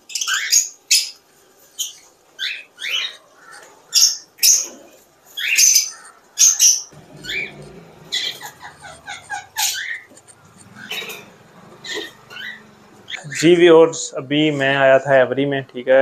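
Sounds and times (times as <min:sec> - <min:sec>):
cockatiel chirps and squawks: 0:01.8 - 0:13.3.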